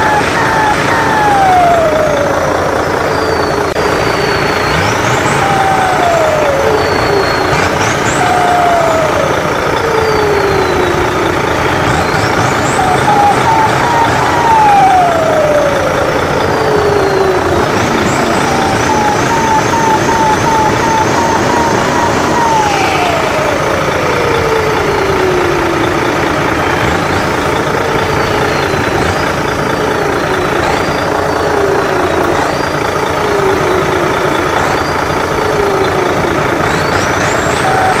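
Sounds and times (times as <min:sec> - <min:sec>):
gliding whistling tones: 0:00.0 - 0:38.0
truck engine and turbo: 0:00.0 - 0:38.0.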